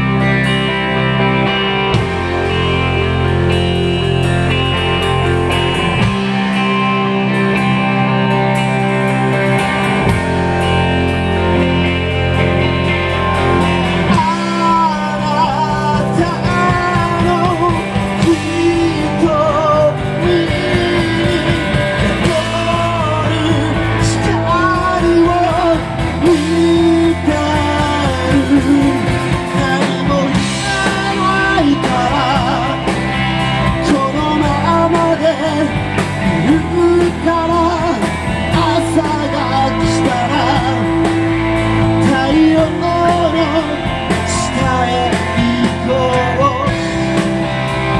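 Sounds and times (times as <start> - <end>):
live rock band playing: 0.0 - 47.9
man singing: 13.4 - 47.3.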